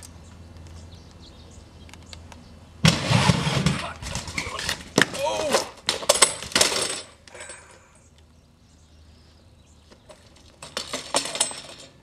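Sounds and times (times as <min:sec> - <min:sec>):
bike clattering onto asphalt: 0:02.8 - 0:07.6, 0:10.0 - 0:12.0.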